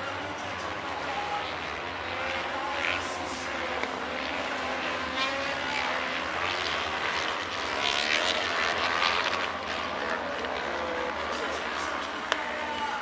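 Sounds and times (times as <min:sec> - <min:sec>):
distant racing kart engines: 0:00.0 - 0:13.0.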